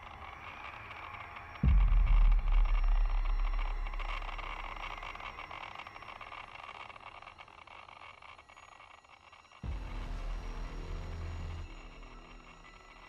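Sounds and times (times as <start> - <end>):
deep cinematic boom: 1.6 - 5.2.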